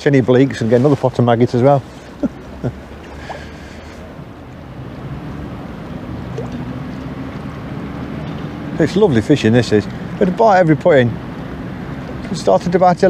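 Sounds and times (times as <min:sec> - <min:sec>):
low steady hum: 0:01.5 - 0:09.3.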